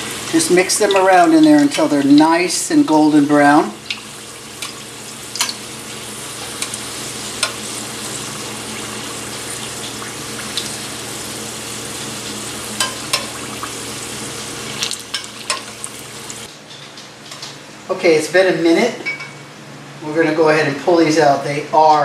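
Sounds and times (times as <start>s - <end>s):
oil sizzling: 0.0s - 16.5s.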